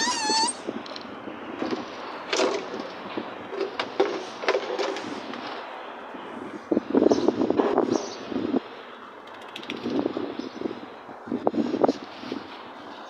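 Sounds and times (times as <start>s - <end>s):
puppy whining: 0.0s - 0.7s.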